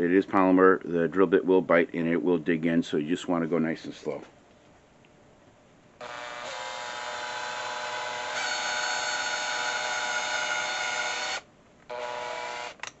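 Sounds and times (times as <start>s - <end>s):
cordless drill whining: 6.0s - 13.0s.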